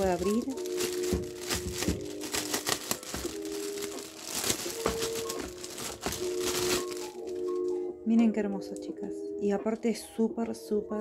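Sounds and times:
plastic bag crinkling: 0.0 - 7.8
soft background music: 0.0 - 11.0.

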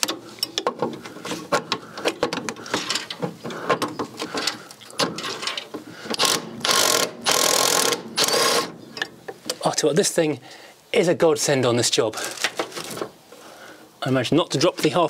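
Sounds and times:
socket ratchet clicking: 6.1 - 8.7.

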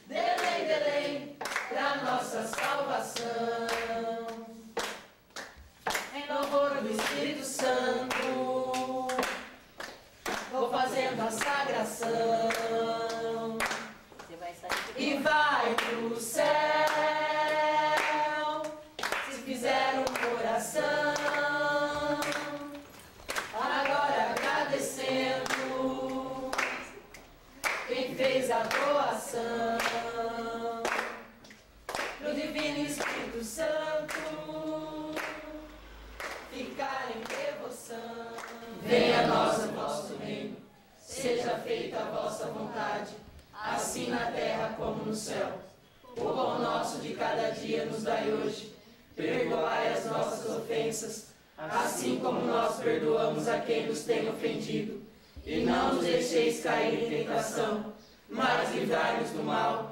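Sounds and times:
group singing a capella: 0.0 - 59.9
hand clapping: 0.2 - 30.2, 30.8 - 35.6, 36.2 - 37.7, 38.4 - 39.3.

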